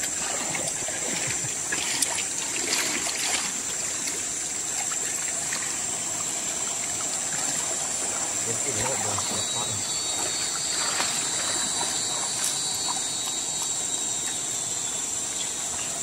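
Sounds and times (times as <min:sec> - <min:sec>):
shallow river water trickling: 0:00.0 - 0:16.0
steady high hiss: 0:03.4 - 0:16.0.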